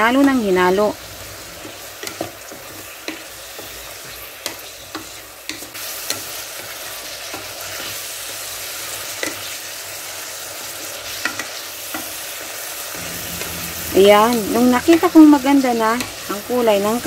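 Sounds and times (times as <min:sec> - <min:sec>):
meat sizzling in oil: 0:01.0 - 0:14.1.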